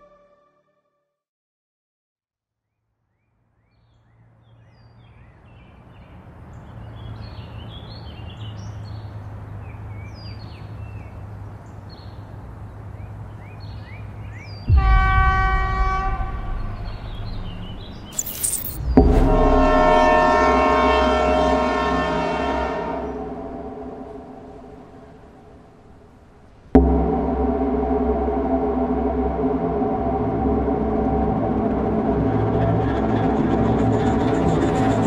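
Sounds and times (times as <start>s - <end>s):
train horn blast: 14.7s - 17.8s, 19.0s - 25.6s
low steady rumble: 14.7s - 35.0s
short high chirps: 16.9s - 19.5s.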